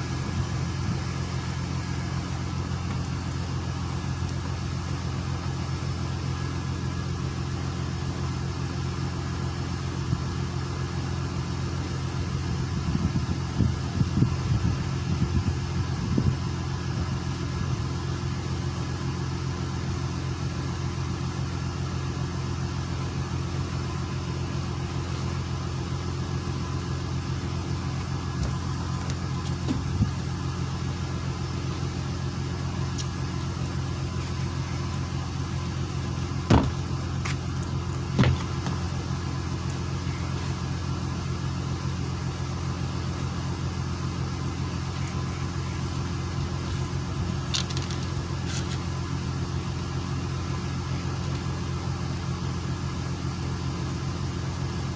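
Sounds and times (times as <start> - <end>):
boat engine droning: 0.0 - 54.9
sharp knocks: 36.5 - 36.8.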